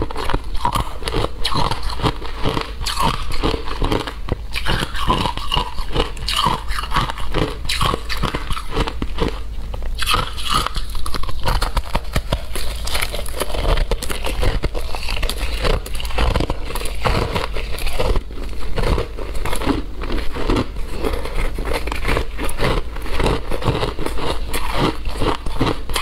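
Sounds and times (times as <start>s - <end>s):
ice crunching between teeth: 0.0s - 26.0s.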